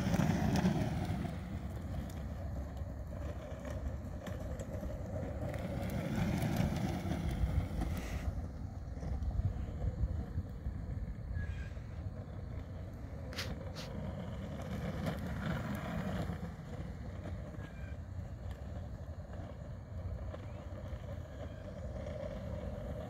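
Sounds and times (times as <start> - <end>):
low outdoor rumble: 0.0 - 23.0
wind on microphone: 6.6 - 12.3.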